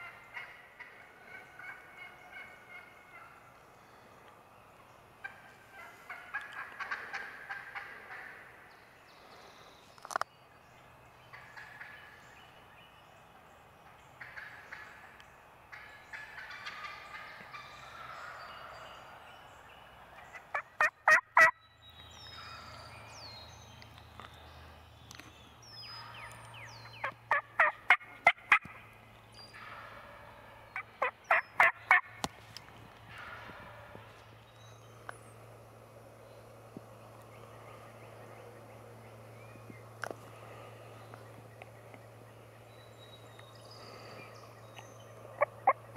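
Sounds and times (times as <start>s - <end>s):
turkey gobbling: 0.0s - 3.4s, 5.2s - 8.5s, 11.3s - 12.1s, 14.2s - 15.1s, 15.7s - 18.7s, 20.2s - 21.6s, 27.0s - 28.8s, 29.6s - 32.2s, 45.4s - 45.9s
turkey yelps: 0.0s - 3.4s, 20.5s - 21.6s, 27.0s - 28.6s, 31.0s - 32.1s
songbirds whistling: 37.2s - 45.9s.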